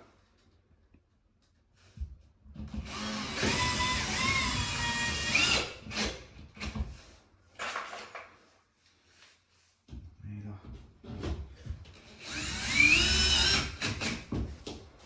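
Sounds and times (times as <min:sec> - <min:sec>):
cordless drill driving screws: 0:02.8 - 0:06.7, 0:12.0 - 0:14.2.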